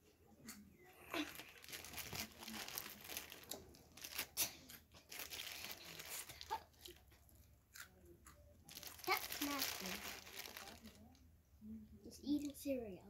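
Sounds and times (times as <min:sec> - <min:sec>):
packaging crinkling and tearing: 0:01.1 - 0:07.0, 0:08.7 - 0:11.2.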